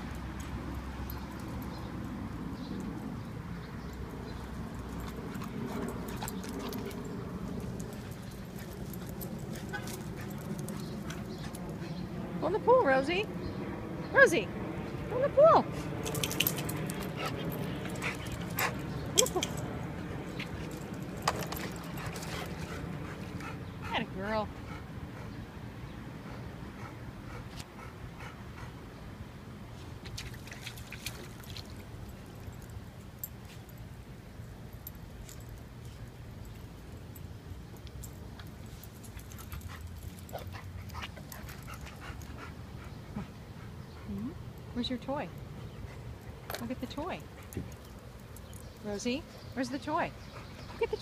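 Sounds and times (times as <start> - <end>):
dog panting: 16.8 - 18.9, 21.9 - 25.4, 26.2 - 28.8, 50.1 - 51.0.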